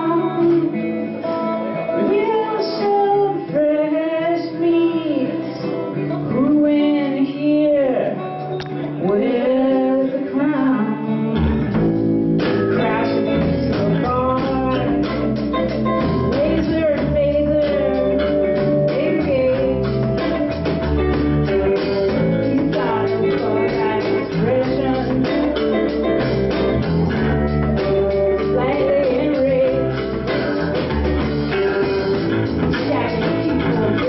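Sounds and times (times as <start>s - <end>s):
electric guitar: 0.0s - 34.0s
drum kit: 11.3s - 34.0s.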